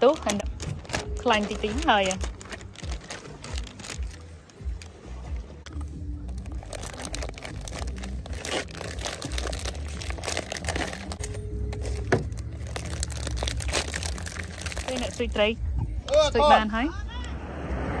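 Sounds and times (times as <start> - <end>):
plastic packaging crinkling: 0.0 - 5.0, 6.3 - 15.4.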